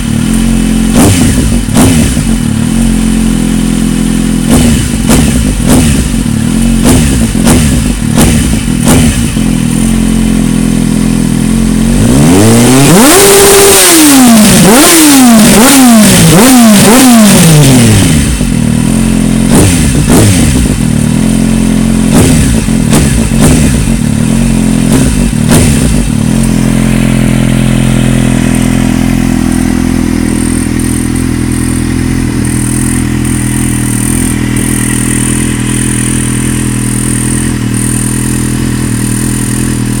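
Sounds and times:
motorcycle engine revving and idling: 0.0 - 40.0.

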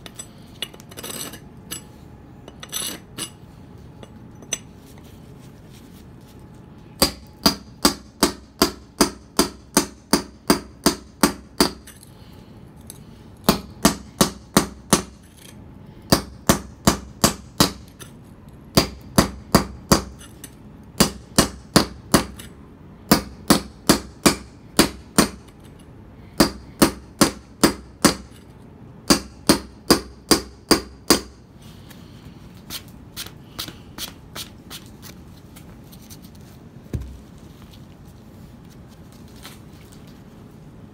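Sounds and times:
hammer striking metal chisel: 29.1 - 31.4.

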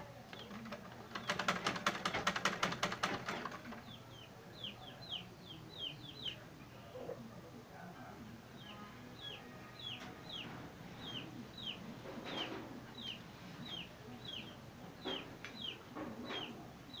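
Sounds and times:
chick peeping: 3.2 - 7.3, 8.6 - 17.0.

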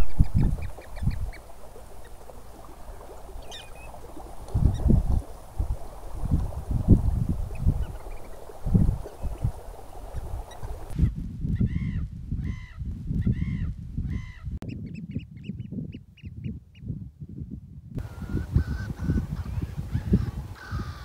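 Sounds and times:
wind buffeting microphone: 0.0 - 21.0
birds calling: 3.4 - 4.1, 18.0 - 21.0.

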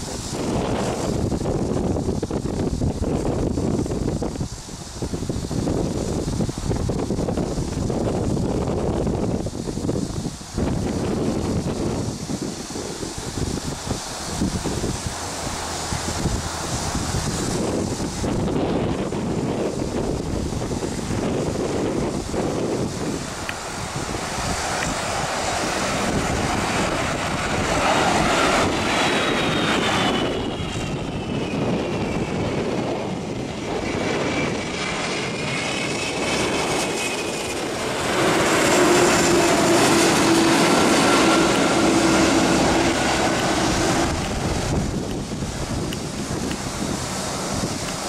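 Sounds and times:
jet airliner passing overhead: 0.0 - 48.0
whining engine tones: 21.2 - 48.0.

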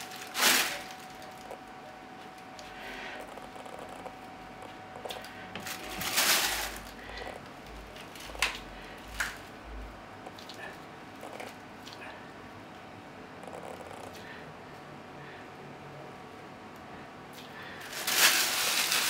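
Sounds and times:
plastic bag crinkling: 0.0 - 1.6, 5.1 - 7.4, 8.0 - 9.6, 17.8 - 19.0.

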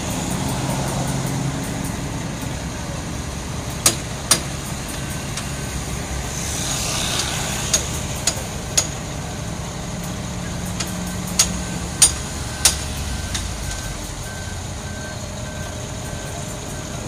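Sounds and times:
heavy diesel engines running: 0.0 - 17.0
truck driving past: 0.0 - 17.0
sharp metal clanks: 7.0 - 9.1, 10.7 - 14.2.

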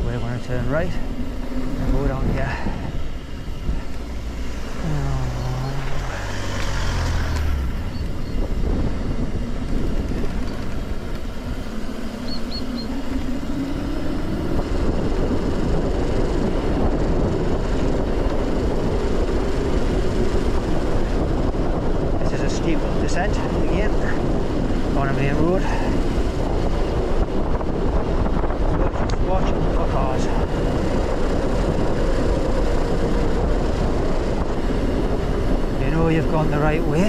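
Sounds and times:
engine note climbing: 0.0 - 16.1, 28.4 - 37.0
road and wind rumble: 0.0 - 37.0.

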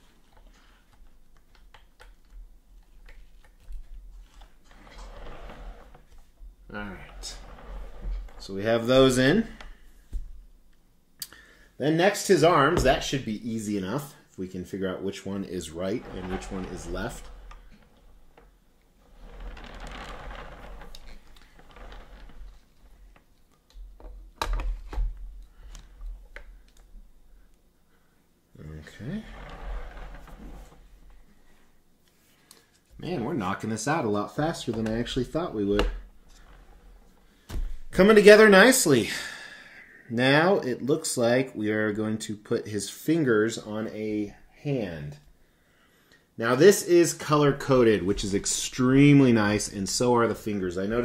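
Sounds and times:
rustling: 15.2 - 23.8.

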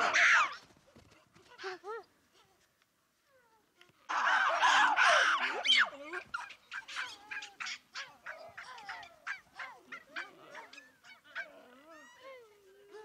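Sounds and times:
baboons calling: 0.0 - 0.6, 4.1 - 12.4.

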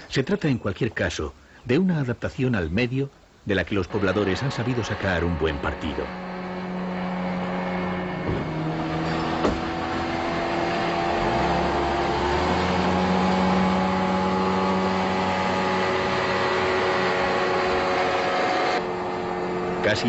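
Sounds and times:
outboard motor drone: 3.9 - 20.0.

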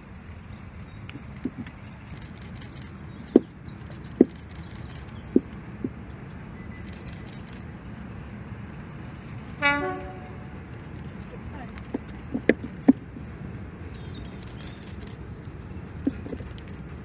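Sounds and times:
steady low rumble: 0.0 - 17.0
sharp knocks: 1.4 - 1.7, 3.3 - 6.0, 11.9 - 13.0
locomotive two-tone horn: 9.5 - 10.7.

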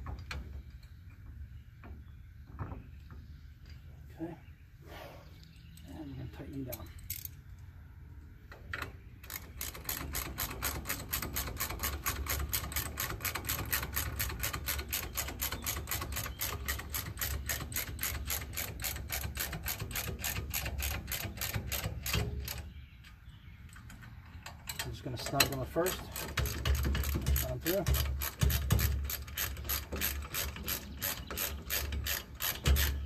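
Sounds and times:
hand ratchet clicking: 9.2 - 22.6, 23.8 - 33.0.

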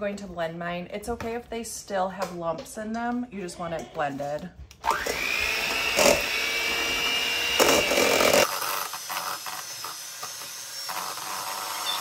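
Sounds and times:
blender motor whining: 4.8 - 12.0.

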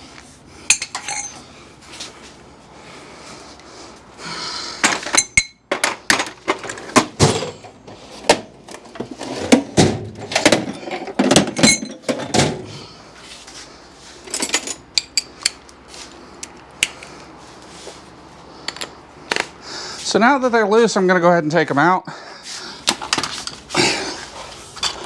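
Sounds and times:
wrenches clanking on metal: 0.7 - 1.4, 10.3 - 12.5, 24.8 - 25.0.

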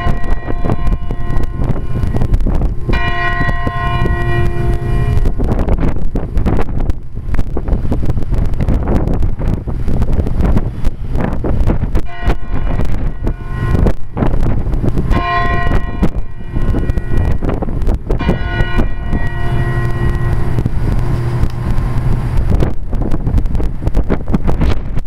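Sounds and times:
church bell ringing: 0.0 - 6.3, 12.1 - 22.0
wind buffeting microphone: 0.0 - 25.0.

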